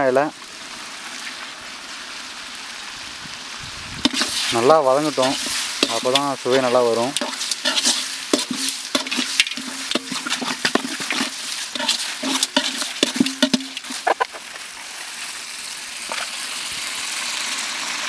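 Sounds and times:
frying sizzle: 0:00.0 - 0:18.0
ladle stirring and scraping pot: 0:04.0 - 0:14.3.

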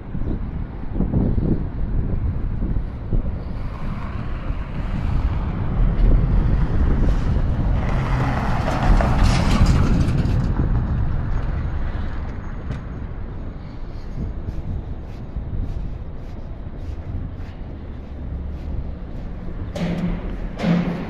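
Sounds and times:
low engine rumble of traffic: 0:00.0 - 0:21.0.

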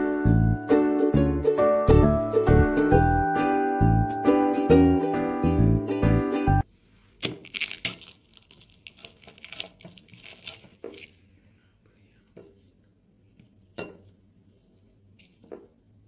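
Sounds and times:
pastry crackling and crunching: 0:07.2 - 0:11.2.

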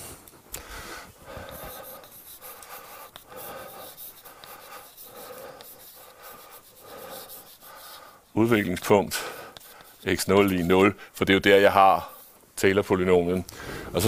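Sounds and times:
chalk scratching on blackboard: 0:01.2 - 0:12.4
chalk tick: 0:01.4 - 0:08.0, 0:08.6 - 0:10.8.

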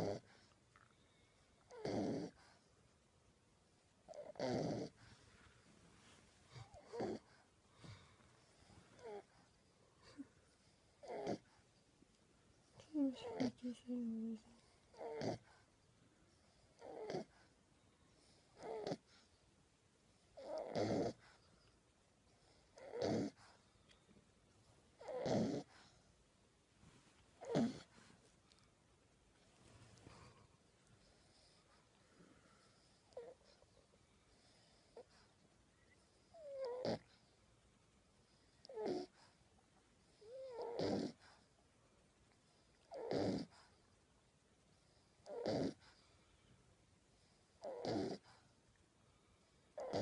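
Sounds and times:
puppy snoring: 0:00.0 - 0:00.6, 0:01.6 - 0:02.7, 0:04.0 - 0:05.2, 0:06.4 - 0:11.7, 0:12.7 - 0:15.7, 0:16.4 - 0:17.6, 0:18.2 - 0:19.4, 0:20.3 - 0:21.7, 0:22.3 - 0:23.6, 0:25.0 - 0:26.1, 0:27.4 - 0:28.7, 0:29.9 - 0:37.4, 0:38.3 - 0:39.4, 0:40.0 - 0:41.5, 0:42.5 - 0:43.9, 0:44.8 - 0:46.2, 0:47.2 - 0:48.6, 0:49.7 - 0:50.0.

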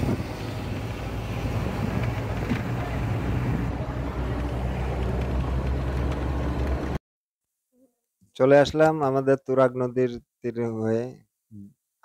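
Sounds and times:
bus engine and road rumble: 0:00.0 - 0:07.0.

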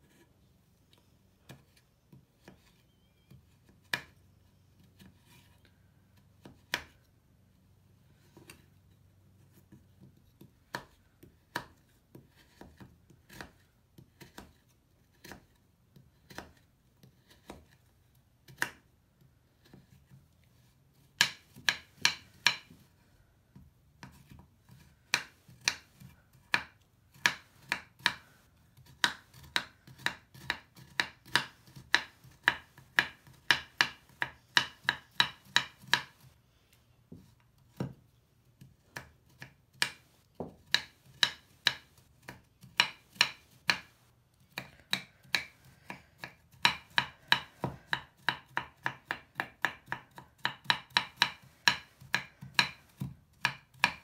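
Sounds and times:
knife chopping on wooden board: 0:09.5 - 0:17.8, 0:21.1 - 0:22.8, 0:23.5 - 0:36.2, 0:37.1 - 0:38.0, 0:38.6 - 0:54.0.

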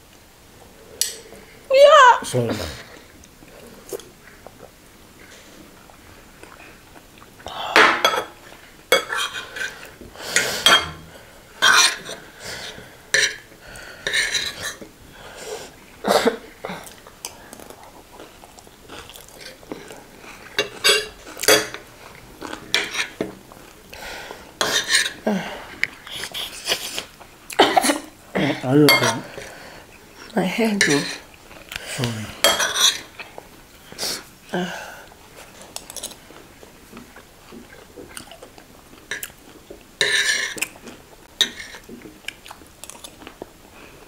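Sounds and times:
cutlery scraping ceramic plates: 0:08.9 - 0:09.8, 0:10.4 - 0:11.0, 0:11.6 - 0:12.2, 0:13.1 - 0:13.5, 0:14.1 - 0:14.8, 0:20.6 - 0:21.8, 0:22.7 - 0:23.2, 0:24.6 - 0:25.2, 0:28.9 - 0:29.5, 0:30.8 - 0:31.2, 0:32.4 - 0:33.1, 0:40.0 - 0:40.7, 0:41.4 - 0:41.9.

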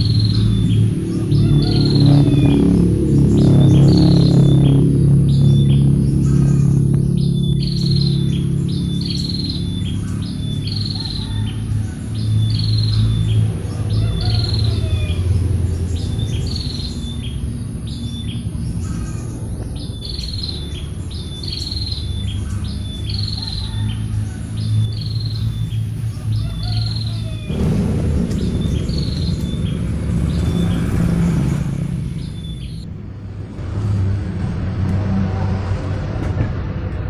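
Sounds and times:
bird calling: 0:00.0 - 0:32.9
low steady rumble: 0:00.0 - 0:37.0.

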